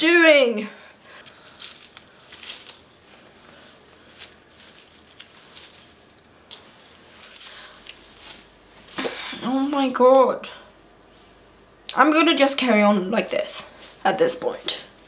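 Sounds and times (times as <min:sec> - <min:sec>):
rustling and scraping handling: 0:01.2 - 0:09.0.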